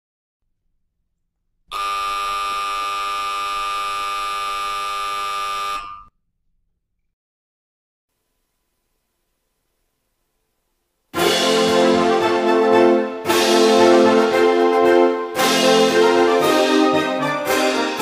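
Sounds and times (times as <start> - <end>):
electric buzzer tone: 1.7 - 6.1.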